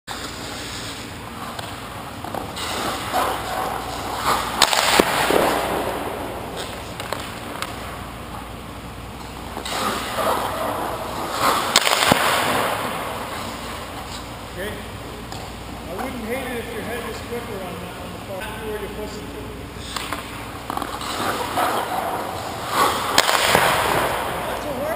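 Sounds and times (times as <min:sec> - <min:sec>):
skate blades scraping ice: 0:00.1 - 0:08.0, 0:09.5 - 0:14.3, 0:19.8 - 0:24.9.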